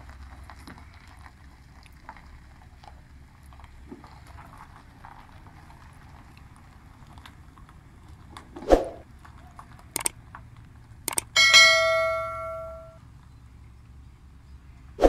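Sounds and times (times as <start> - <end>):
whoosh: 8.6 - 9.0
mouse clicks: 11.1 - 11.3
bell ding: 11.3 - 13.0.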